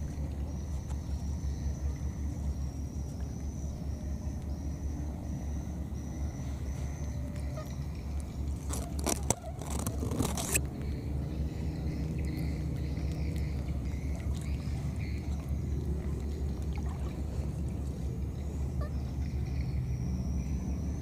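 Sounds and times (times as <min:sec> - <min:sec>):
faint high whine: 0:00.0 - 0:21.0
scraping and rustling noises: 0:08.5 - 0:10.7.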